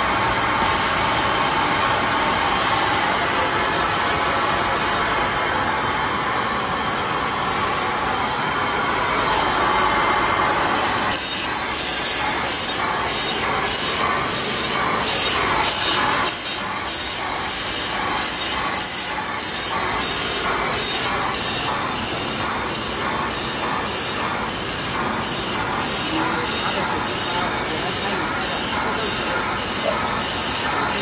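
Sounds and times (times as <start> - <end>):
steady machine noise: 0.0 - 31.0
router spindle cutting bursts: 10.9 - 31.0.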